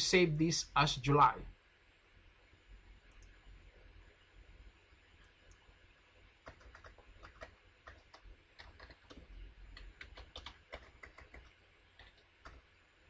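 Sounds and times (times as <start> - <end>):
typing on computer keyboard: 6.4 - 12.7.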